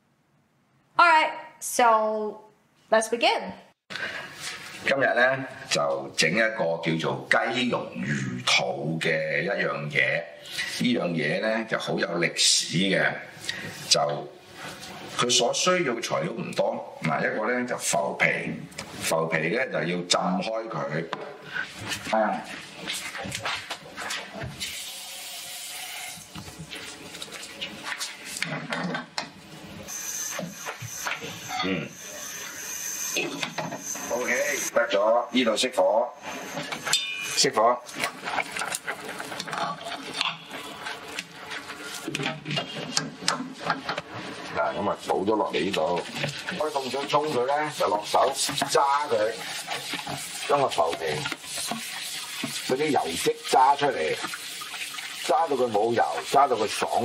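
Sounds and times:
hands rinsing and squeezing: 21.6s - 32.3s, 36.2s - 57.0s
tap water running into sink: 22.9s - 29.4s, 37.9s - 57.0s
metallic pot clinks and knocks: 36.8s - 37.5s
tap running into saucepan: 49.4s - 52.7s.

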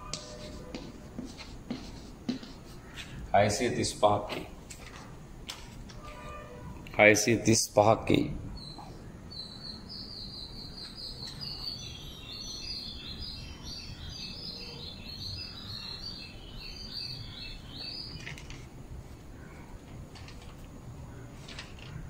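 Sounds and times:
low steady background noise: 0.0s - 22.0s
small bird chirping: 8.6s - 18.4s.

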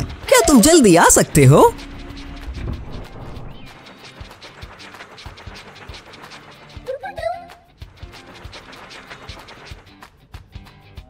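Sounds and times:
cartoon background music: 0.0s - 2.4s, 6.3s - 7.7s.

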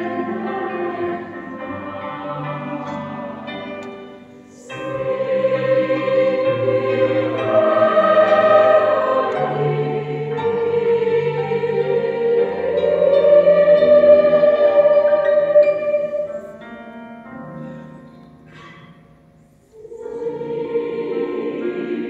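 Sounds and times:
choir singing a carol: 0.0s - 16.9s, 19.6s - 22.0s.

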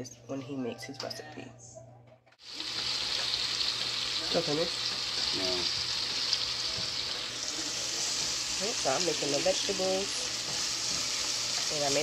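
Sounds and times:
vegetables sizzling in a skillet: 2.4s - 12.0s.

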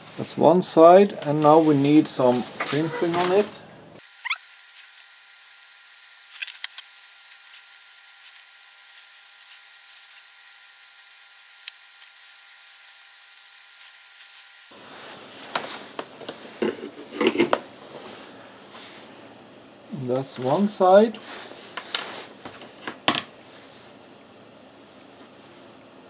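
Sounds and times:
hands rubbing and rustling: 1.2s - 3.5s, 21.2s - 22.4s.

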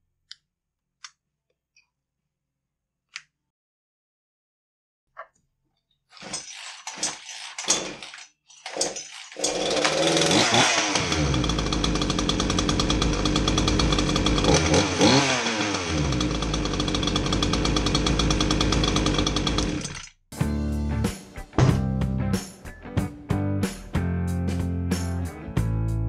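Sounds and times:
chainsaw starting and revving: 6.2s - 20.2s.

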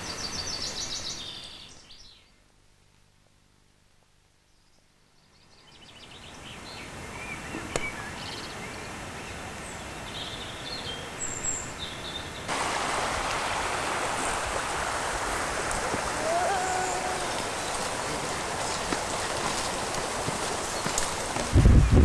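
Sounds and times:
small birds chirping: 0.0s - 2.5s, 4.4s - 12.5s, 15.8s - 22.0s
river water rushing: 12.4s - 22.0s.

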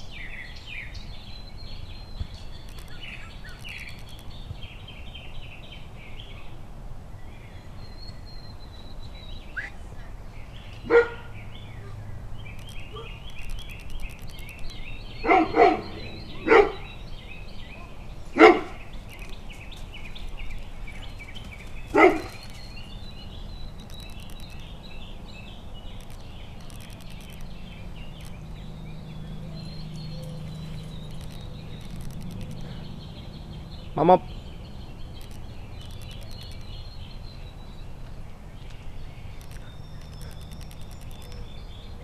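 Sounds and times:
birds chirping: 0.0s - 42.0s
dog barking deeply: 10.8s - 12.0s, 15.2s - 16.9s, 18.4s - 18.8s, 21.9s - 22.4s.

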